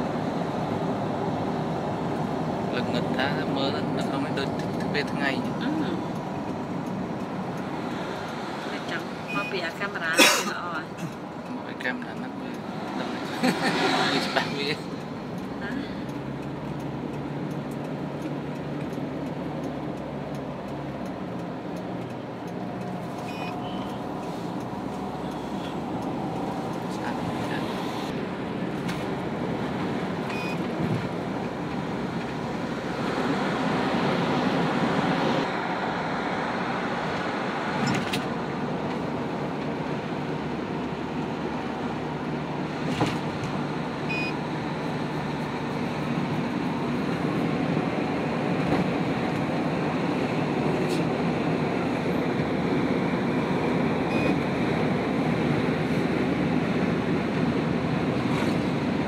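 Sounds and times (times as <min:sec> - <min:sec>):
engine and tyre hum: 0:00.0 - 0:59.0
faint high beeps: 0:09.3 - 0:09.6, 0:23.2 - 0:24.0.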